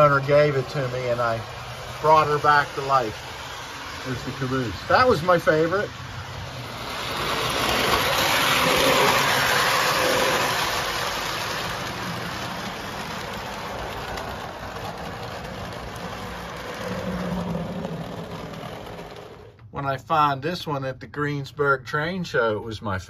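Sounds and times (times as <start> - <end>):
model train rumbling on track: 0.0 - 20.8.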